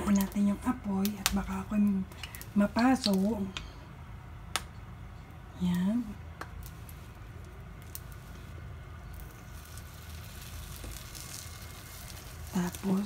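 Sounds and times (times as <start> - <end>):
batter sizzling in hot oil: 6.4 - 13.0.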